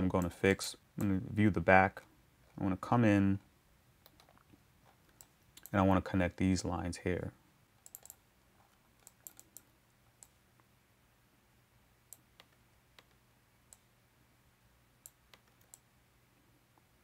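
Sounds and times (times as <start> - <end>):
faint low hum: 0.0 - 17.0
computer mouse clicks: 4.0 - 5.8, 7.8 - 10.4, 12.1 - 13.9, 15.0 - 15.9.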